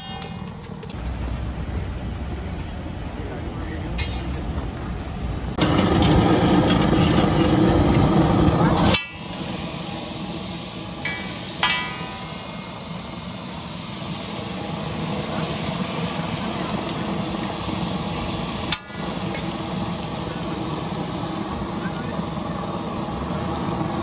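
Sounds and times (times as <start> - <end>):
ringing metallic clinks: 0.0 - 0.7
street stall noise: 0.0 - 24.0
traffic: 0.0 - 24.0.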